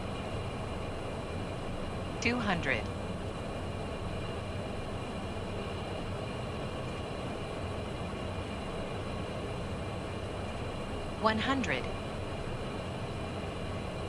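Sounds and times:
faint steady hum: 0.0s - 14.0s
jet engine and airflow noise: 0.0s - 14.0s.

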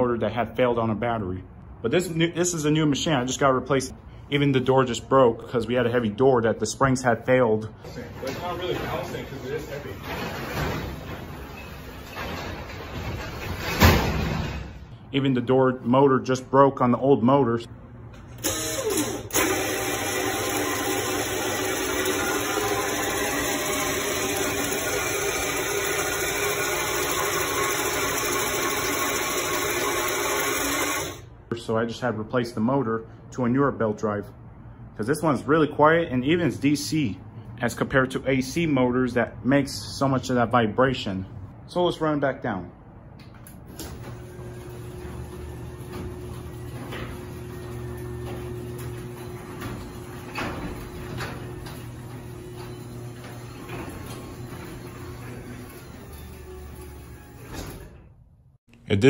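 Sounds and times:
garage door opener humming: 7.9s - 14.8s, 18.0s - 31.3s, 43.3s - 58.5s.

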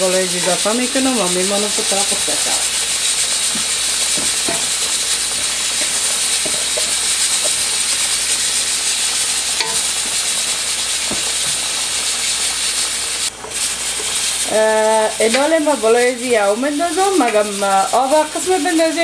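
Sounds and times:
steady hiss: 0.0s - 19.0s
rice pouring into a pot: 0.4s - 14.5s.

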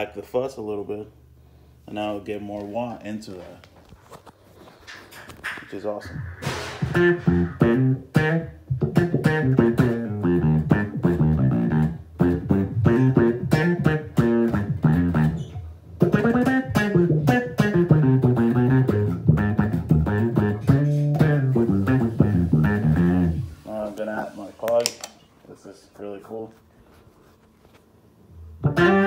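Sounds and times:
fuzzy electric bass with wah sweeps: 5.9s - 24.0s, 28.5s - 29.0s.

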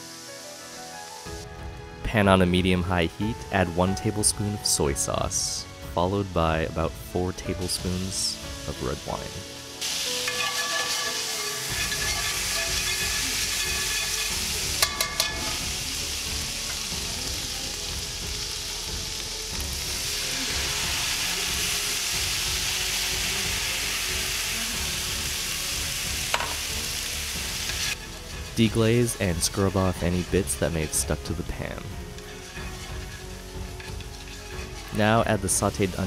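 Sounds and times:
liquid sizzling in a hot skillet: 0.0s - 1.5s, 7.6s - 36.0s
metal tongs scraping: 9.8s - 15.6s, 32.1s - 35.0s.

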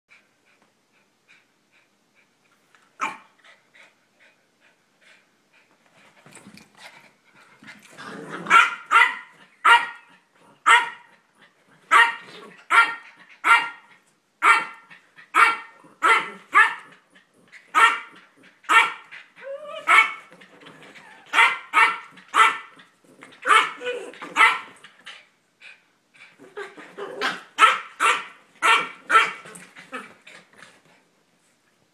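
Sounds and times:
small dogs yapping: 17.7s - 24.8s
dog whining: 19.4s - 21.4s, 23.4s - 24.3s.

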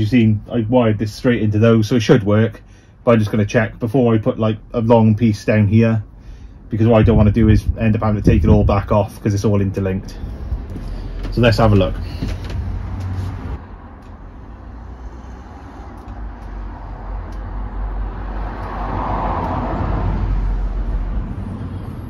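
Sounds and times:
road traffic rumbling: 0.0s - 22.0s
vehicle passing: 10.0s - 22.0s.

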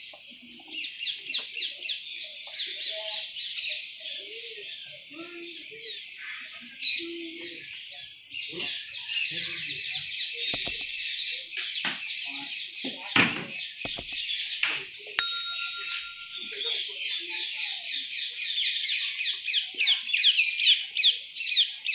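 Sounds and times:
small birds chirping: 0.2s - 12.9s, 13.7s - 14.6s
sharp click: 10.6s - 11.2s, 13.9s - 14.4s.

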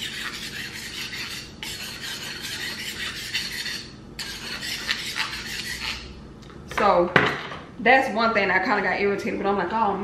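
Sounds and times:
knife rasping on honing steel: 0.0s - 6.1s.

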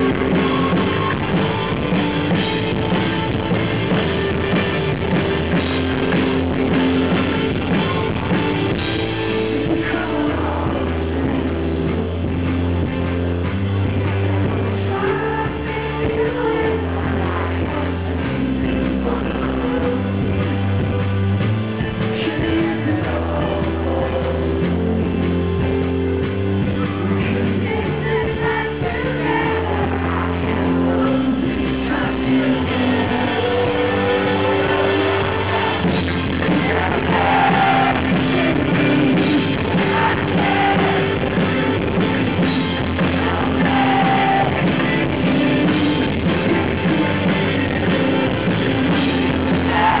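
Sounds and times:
live rock band playing: 0.0s - 50.0s
man singing hard: 27.7s - 41.8s, 42.8s - 50.0s.

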